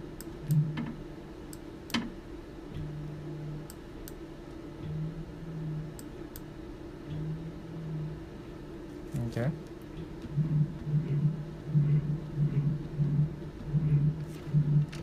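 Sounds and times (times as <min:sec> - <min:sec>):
machine hum: 0:00.0 - 0:15.0
low steady drone: 0:02.2 - 0:15.0.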